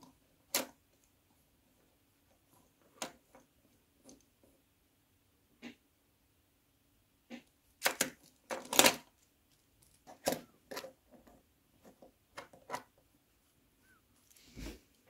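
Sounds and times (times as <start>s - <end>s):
plastic parts clicking: 0.5s - 1.0s, 7.4s - 13.0s
plastic on wooden tabletop: 7.3s - 13.5s.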